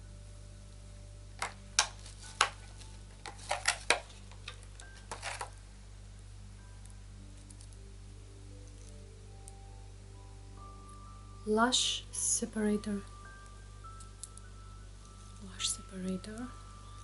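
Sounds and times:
plastic packaging clicks and taps: 1.4 - 5.5.

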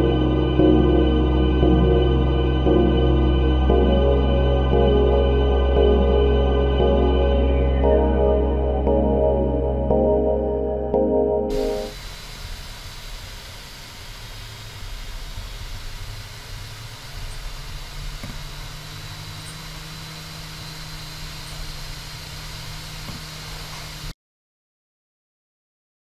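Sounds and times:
ambient synth music: 0.0 - 12.0
steady low hum: 0.0 - 12.0.

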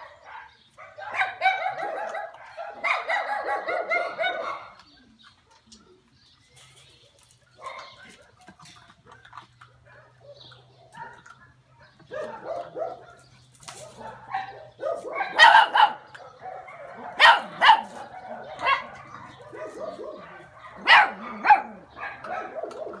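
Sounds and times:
puppies barking and yipping: 0.0 - 23.0
puppies grumbling: 7.6 - 23.0.

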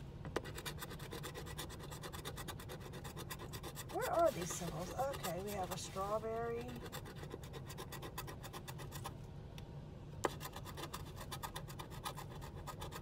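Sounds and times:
lottery ticket scraping: 3.9 - 6.7.

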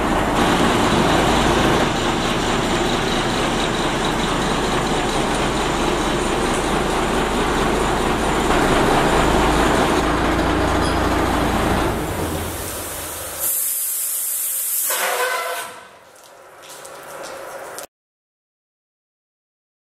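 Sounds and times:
fire truck engine rumbling: 0.0 - 17.7
air hissing: 12.1 - 15.7.

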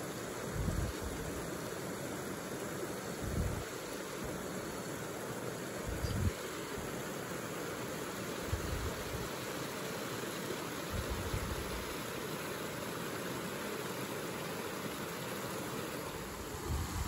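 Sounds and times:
water rushing over weir: 0.0 - 17.0
wind bumps on microphone: 0.6 - 1.2, 16.6 - 17.0.

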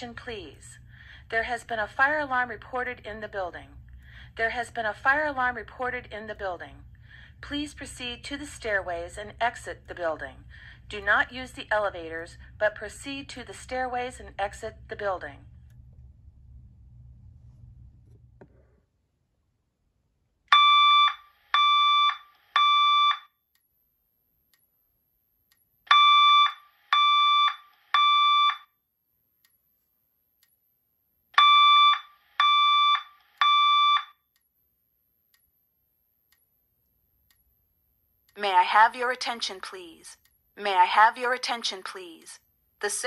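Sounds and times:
fire alarm beeps: 20.5 - 23.4, 25.9 - 28.8, 31.4 - 34.2.

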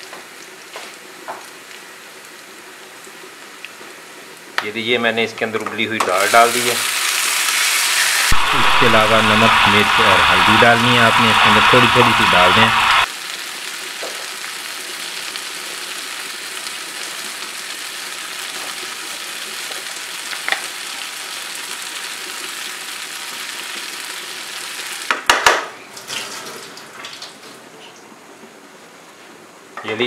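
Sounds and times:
food sizzling in oil: 6.0 - 25.1.

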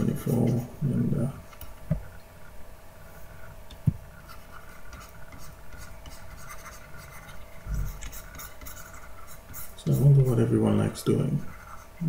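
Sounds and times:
stylus scratching on tablet: 0.0 - 0.8, 4.1 - 12.0.

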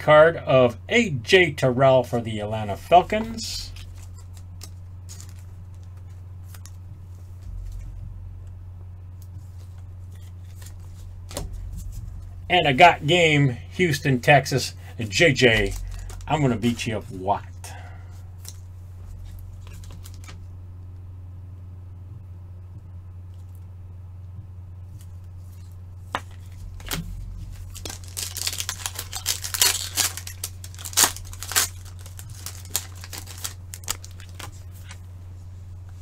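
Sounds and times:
steady low hum: 0.0 - 36.0
plastic wrapper tearing and crinkling: 3.2 - 6.8, 15.4 - 17.1, 18.4 - 20.4, 25.5 - 35.0.

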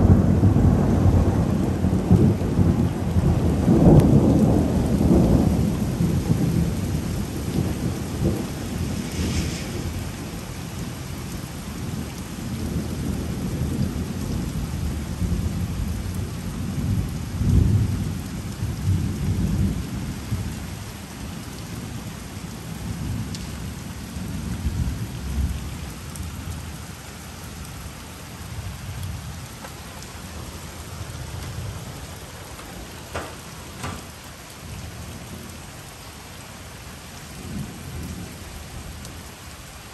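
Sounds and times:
thunder rumbling: 0.0 - 20.5, 28.4 - 35.6
heavy rain: 0.0 - 39.9.

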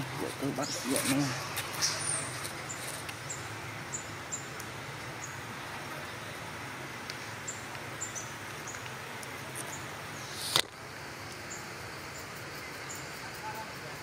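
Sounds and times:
high wildlife chirps: 0.0 - 6.3, 11.4 - 14.0
steady hiss: 0.0 - 14.0.

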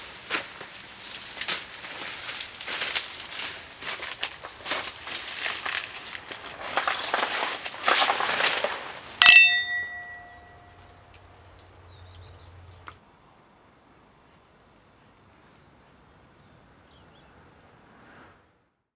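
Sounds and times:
crackling rustling noise: 0.0 - 9.2
metallic chime ringing: 9.2 - 10.8.

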